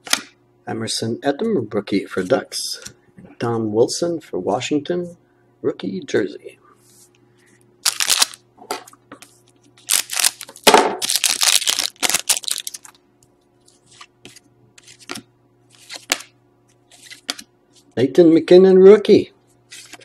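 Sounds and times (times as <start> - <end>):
cards rustling: 7.8 - 8.4, 9.8 - 13.0, 13.6 - 17.5, 19.7 - 20.0
foil wrapper tearing and crinkling: 7.8 - 8.4, 9.8 - 13.0.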